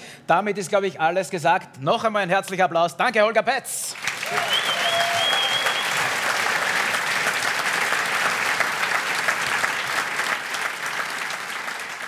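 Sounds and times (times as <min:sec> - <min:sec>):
audience applauding: 0:03.9 - 0:12.0.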